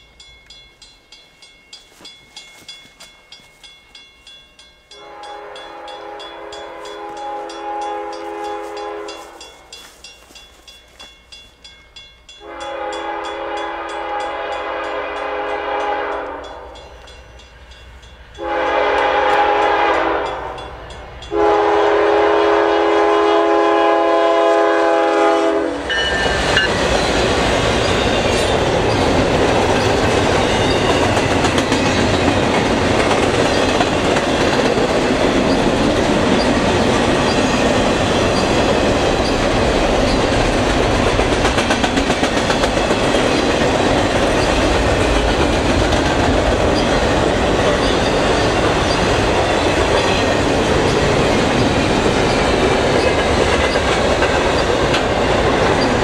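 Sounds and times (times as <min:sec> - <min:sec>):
train passing rumble: 0:00.0 - 0:56.0
locomotive air horn: 0:05.0 - 0:09.4, 0:12.4 - 0:16.6, 0:18.4 - 0:20.6, 0:21.3 - 0:26.4
train wheels clattering on rails: 0:24.1 - 0:56.0.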